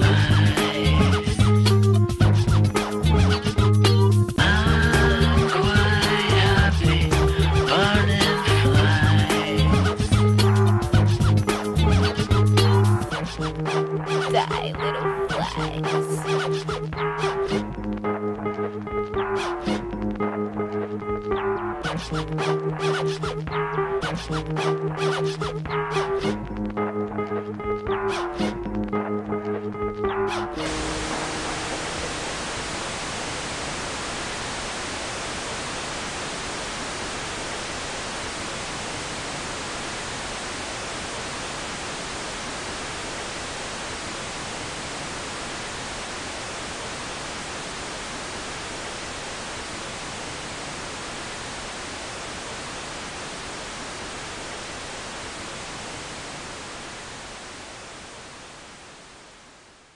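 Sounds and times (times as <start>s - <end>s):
steady hiss: 30.6s - 59.9s.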